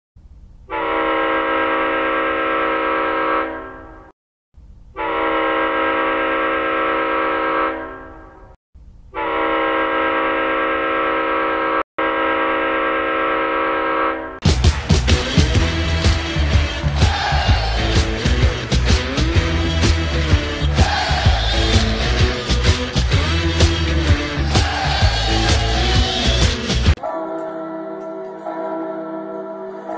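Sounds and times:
goal horn blasts: 0.7 - 3.9, 5.0 - 8.1, 9.1 - 14.4.

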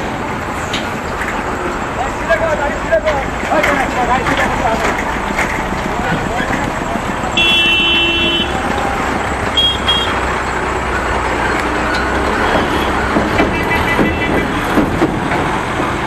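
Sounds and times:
heavy truck engine rumbling: 0.0 - 16.0
vehicle horns honking: 7.3 - 8.8, 9.5 - 10.4, 12.4 - 14.8.

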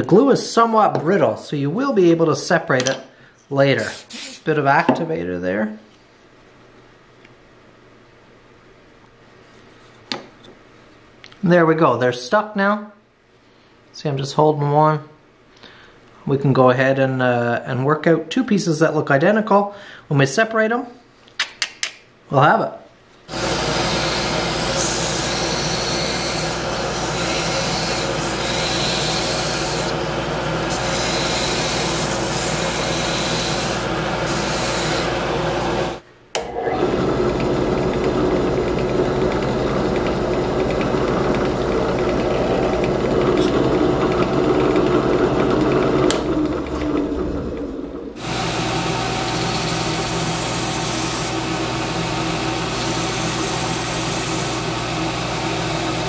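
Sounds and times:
belt grinder grinding wood: 23.3 - 36.0, 36.6 - 56.0
drill press drilling: 23.3 - 56.0.

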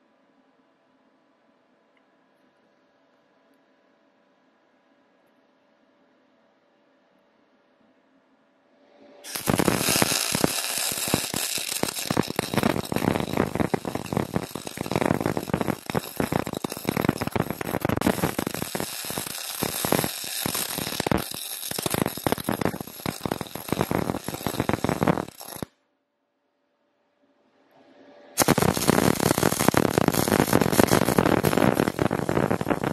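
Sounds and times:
welding arc crackling: 9.3 - 25.7, 28.4 - 32.9.

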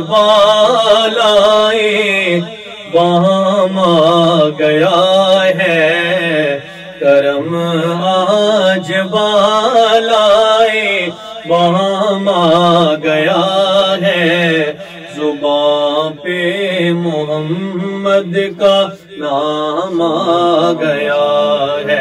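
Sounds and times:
man singing long held notes: 0.0 - 22.0
singer breathing: 6.6 - 7.0, 11.1 - 11.5, 14.7 - 15.2, 18.9 - 19.2.

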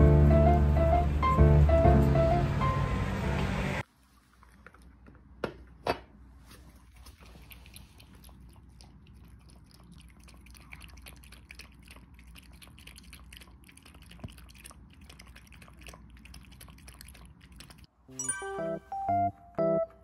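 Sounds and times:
dog lapping water: 6.7 - 17.9.

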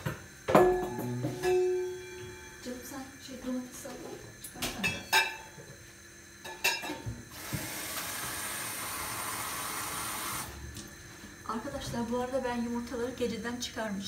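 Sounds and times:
metal saucepan clinking: 4.8 - 5.5, 6.4 - 7.0
tap water running into pan: 7.0 - 10.5.

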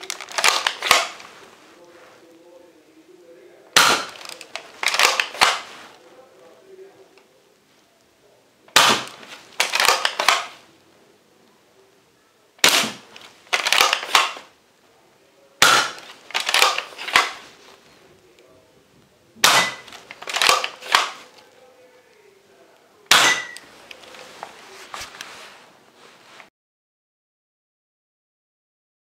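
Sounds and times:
plastic blaster pump clacks: 0.0 - 1.2, 3.8 - 5.7, 8.8 - 10.5, 12.7 - 14.5, 15.6 - 17.4, 19.5 - 21.2
foam dart shot: 3.8 - 4.2, 8.8 - 9.3, 12.6 - 13.1, 15.6 - 17.4.

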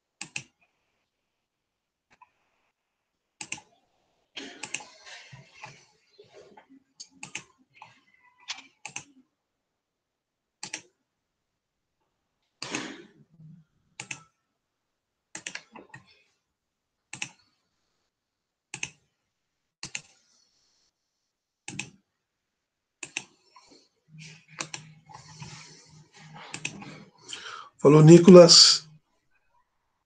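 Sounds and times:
computer keys clicking: 0.2 - 0.5, 3.4 - 3.7, 7.1 - 7.9, 14.0 - 14.3, 18.7 - 19.0, 21.7 - 22.0, 23.0 - 23.3, 24.6 - 24.8, 26.5 - 26.8.

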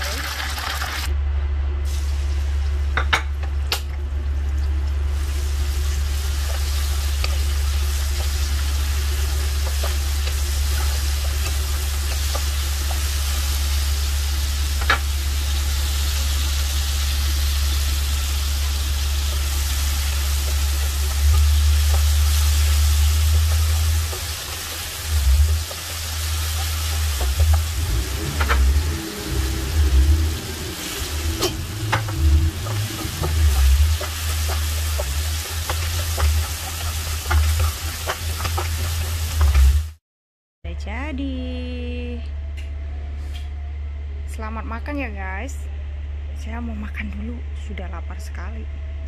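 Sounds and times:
food sizzling in hot oil: 0.0 - 1.1, 5.0 - 40.0
low hum: 0.7 - 40.0, 40.6 - 49.0
spatula stirring in wok: 6.1 - 15.2, 18.3 - 39.9.

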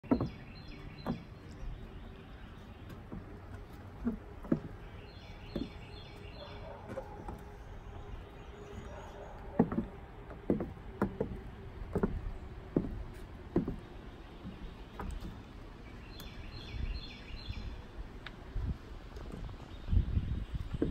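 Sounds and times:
heeled boots on wooden boards: 0.0 - 17.2
birds chirping faintly: 0.0 - 20.9.

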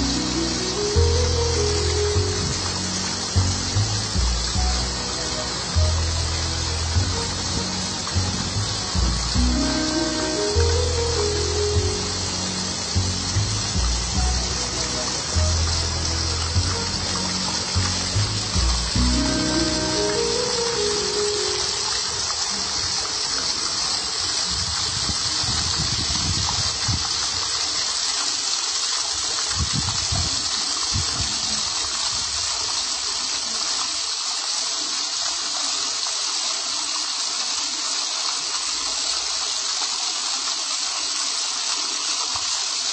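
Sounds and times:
fountain jets splashing: 0.0 - 42.9
water rushing down wall: 0.0 - 42.9
low rumbles: 1.0 - 9.7, 10.6 - 20.1.

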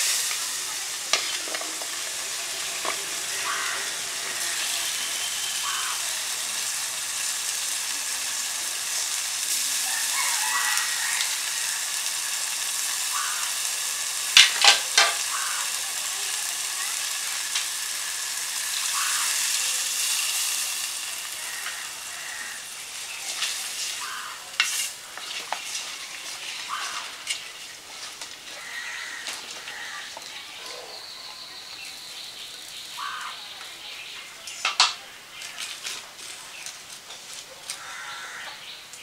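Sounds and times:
bubbling simmer: 0.0 - 15.7
water hissing in a hot pot: 0.0 - 39.0.

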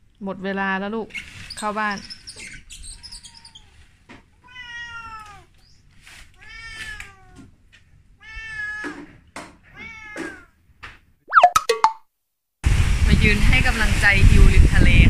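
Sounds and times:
cat meowing: 2.9 - 3.8, 4.4 - 5.6, 6.4 - 7.5, 8.2 - 10.6.

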